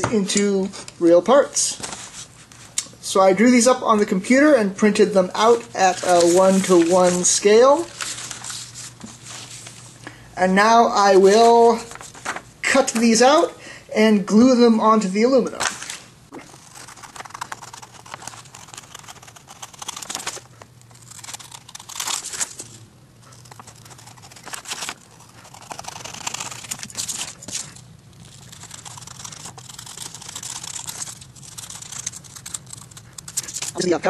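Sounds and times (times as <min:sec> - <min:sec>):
paper cutting and crinkling: 0:05.4 - 0:09.8, 0:11.2 - 0:13.1, 0:15.6 - 0:33.9.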